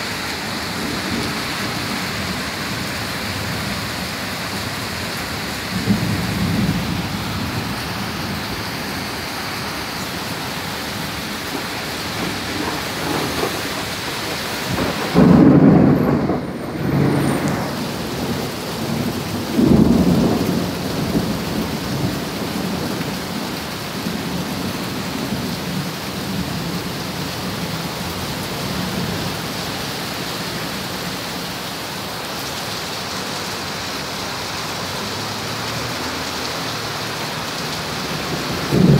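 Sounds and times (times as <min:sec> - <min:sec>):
steady rain: 0:00.0 - 0:38.9
rolling thunder: 0:00.6 - 0:08.7, 0:10.9 - 0:23.1, 0:37.9 - 0:38.9.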